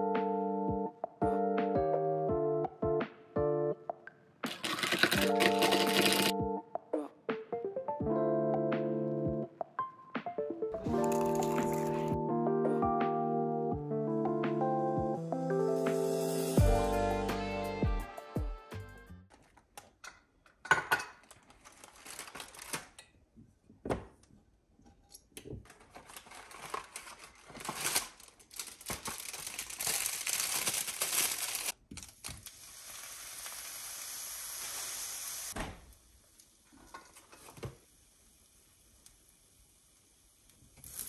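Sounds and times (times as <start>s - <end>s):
crinkling and rustling: 4.5s - 6.3s, 19.3s - 20.0s, 21.1s - 24.4s, 25.4s - 32.5s
even hiss: 32.5s - 36.4s.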